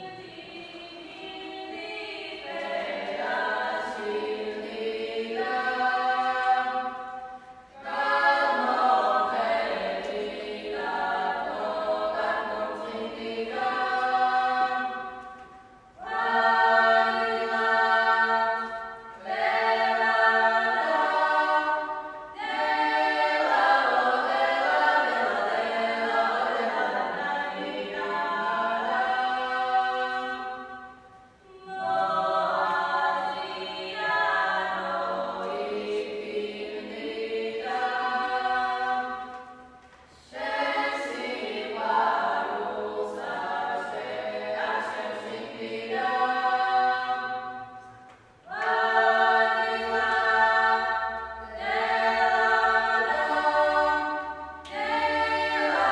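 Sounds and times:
women singing a cappella: 0.0 - 55.9.

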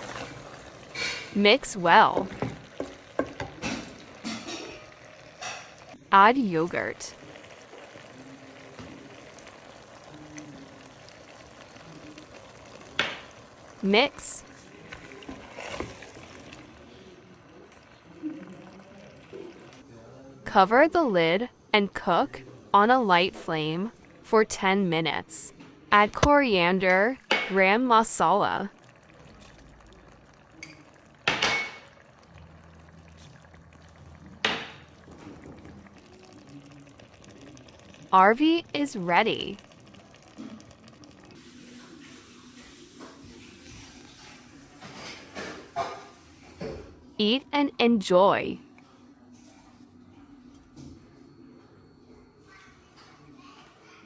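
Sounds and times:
food sizzling in a pot: 0.0 - 19.8, 26.2 - 46.9
utensil knocking metal pot: 2.1 - 5.8, 30.6 - 31.9.

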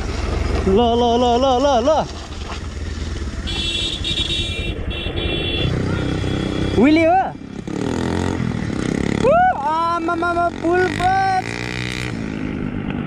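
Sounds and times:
motorcycle engine rumbling: 0.0 - 13.0
person yelling: 9.2 - 11.5.

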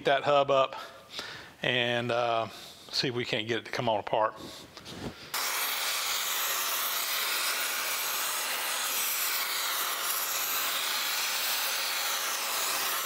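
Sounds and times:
gas torch flame hissing: 5.3 - 13.0.

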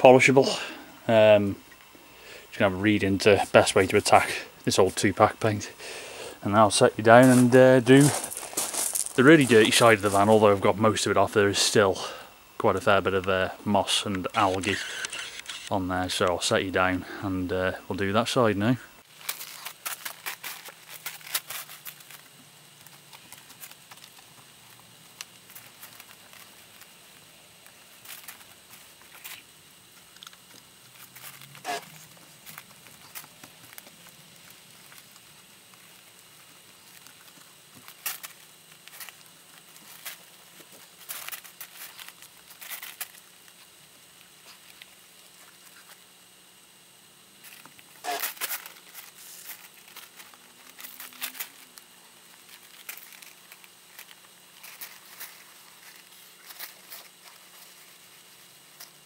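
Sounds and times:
footsteps: 7.0 - 10.6.

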